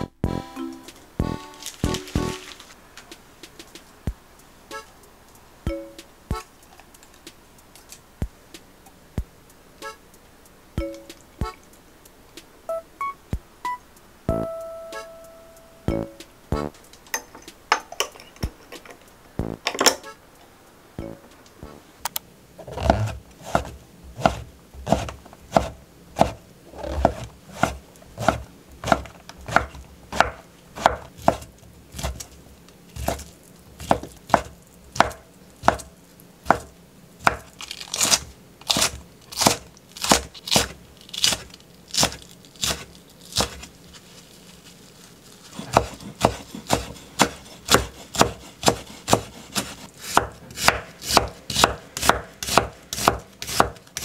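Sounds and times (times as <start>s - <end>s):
knife chopping on wooden board: 22.7s - 32.2s, 33.0s - 43.7s, 45.5s - 54.0s.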